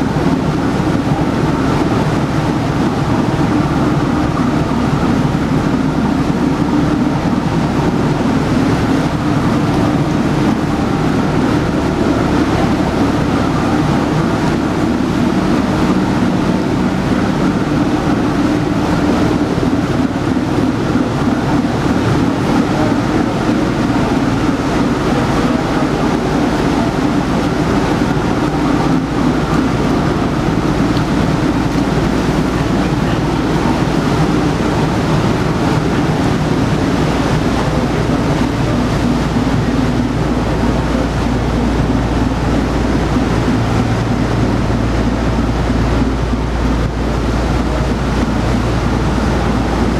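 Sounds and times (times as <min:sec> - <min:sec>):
boat engine drone: 0:00.0 - 0:49.9
deep rumble: 0:00.0 - 0:49.9
propeller wash churning: 0:00.0 - 0:49.9.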